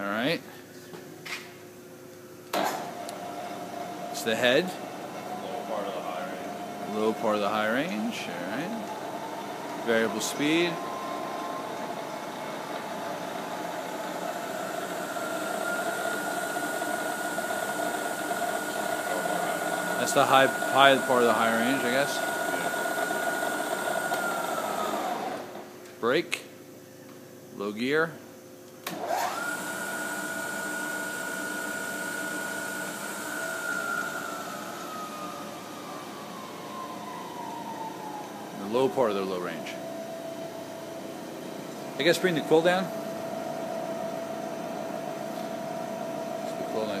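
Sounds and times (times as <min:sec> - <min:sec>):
milling machine spindle humming: 0:02.8 - 0:25.8, 0:28.9 - 0:47.0
thin high whine: 0:19.0 - 0:22.8.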